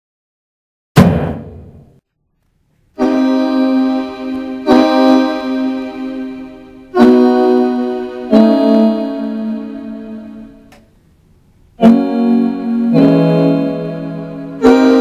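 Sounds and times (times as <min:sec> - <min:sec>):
loud hit: 0:01.0 - 0:02.0
electronic keyboard chords: 0:03.0 - 0:10.9, 0:11.8 - 0:15.0.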